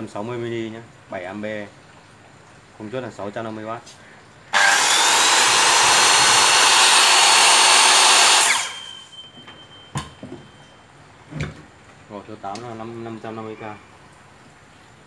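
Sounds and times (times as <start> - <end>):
circular saw whirring: 4.5 - 9.1.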